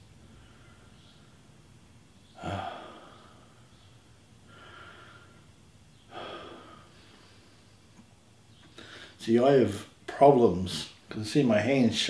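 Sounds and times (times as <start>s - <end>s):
man breathing heavily: 2.4s - 3.8s, 4.4s - 7.8s, 8.7s - 9.2s.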